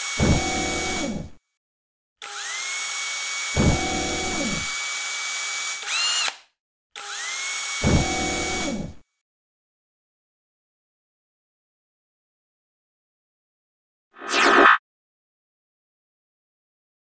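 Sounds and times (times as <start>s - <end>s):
mechanical whir rising into whine: 14.2s - 14.8s
rising power-up sweep: 14.2s - 14.8s.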